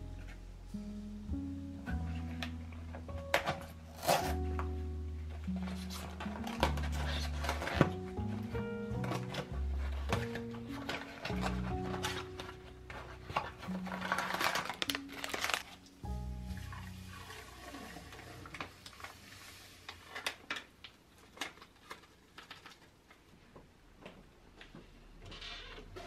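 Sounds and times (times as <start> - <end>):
background music: 0.0 - 19.1
paper rustling: 2.1 - 23.2.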